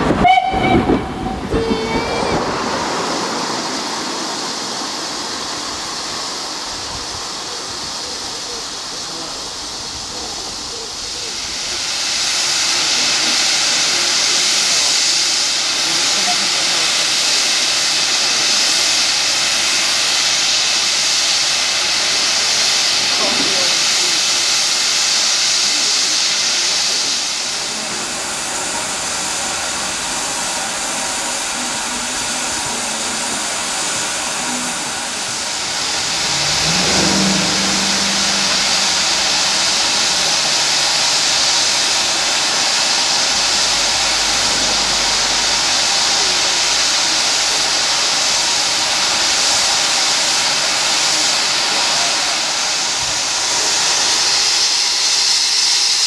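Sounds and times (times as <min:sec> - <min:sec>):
steam locomotive hissing: 0:00.0 - 0:56.0.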